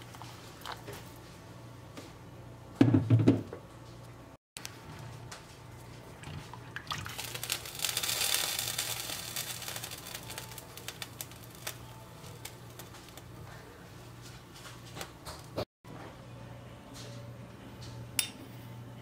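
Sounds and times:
liquid sloshing and hissing: 6.1 - 11.8.

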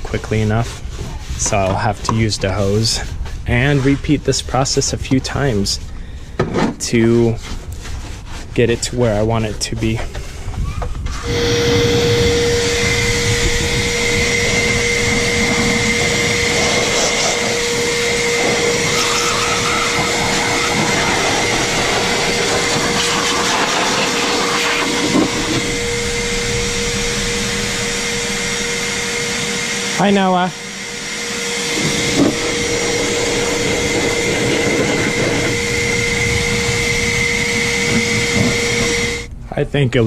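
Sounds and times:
vacuum cleaner whining: 10.2 - 39.3.

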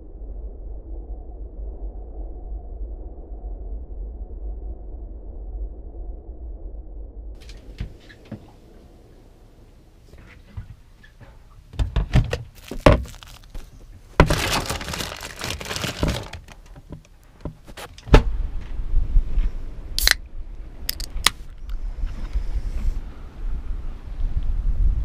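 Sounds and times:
anchoring gear clunking and rattling: 10.1 - 18.2.

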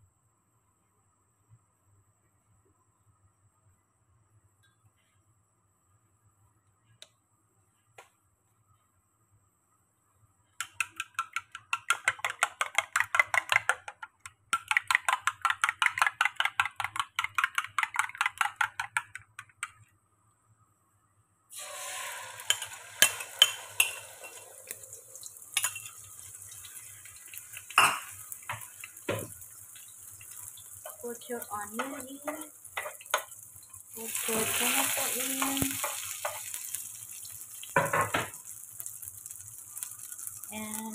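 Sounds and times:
eggs whisked in bowl: 10.6 - 19.8
egg sizzling in oil: 21.5 - 40.9.

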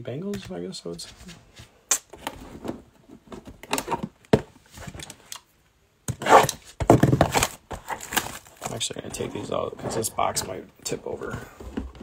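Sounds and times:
cardboard boxes knocking and scraping: 6.1 - 10.6
cardboard boxes bumping: 6.2 - 8.7.

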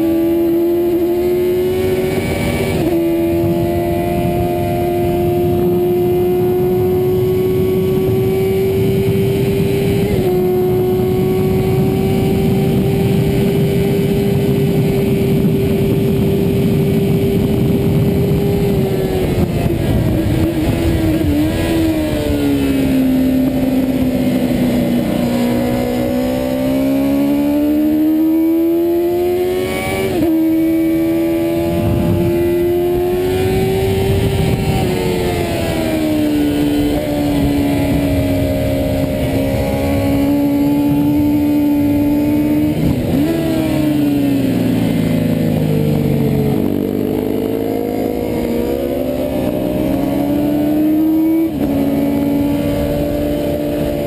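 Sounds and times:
motorcycle engine at high revs: 0.0 - 54.0
rushing wind: 0.0 - 54.0.

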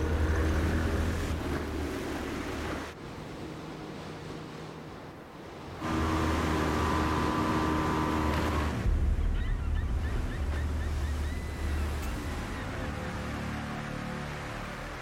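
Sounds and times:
outboard motor running: 0.0 - 2.9, 5.8 - 9.0
sea and wind noise: 0.0 - 15.0.

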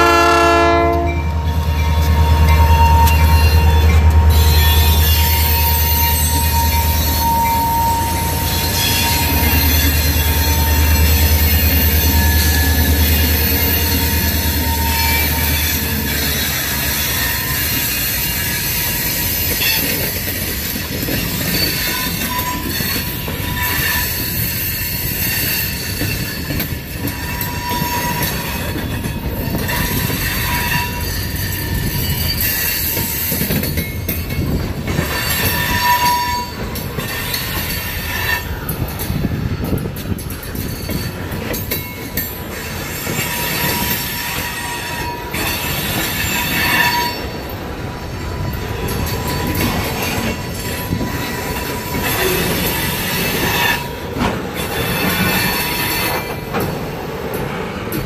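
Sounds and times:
train wheels rumbling on rail: 0.0 - 58.0
high-pitched wheel squeal: 1.5 - 20.2, 21.0 - 28.7, 35.0 - 38.7, 42.6 - 47.4.

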